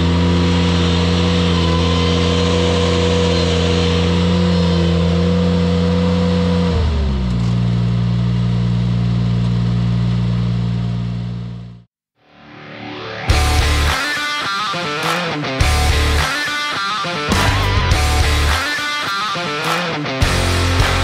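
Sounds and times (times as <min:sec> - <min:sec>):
tractor engine running stump grinder: 0:00.0 - 0:11.8.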